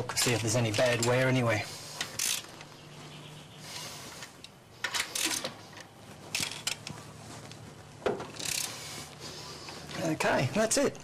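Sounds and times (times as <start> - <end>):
ratchet wrench clicking: 2.0 - 2.5, 8.4 - 8.8.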